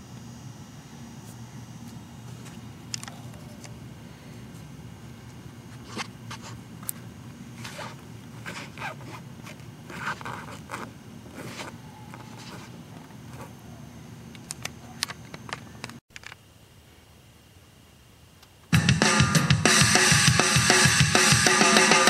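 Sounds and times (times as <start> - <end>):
steady low hum: 0.0 - 22.0
clicks and scrapes of handling: 7.6 - 13.6.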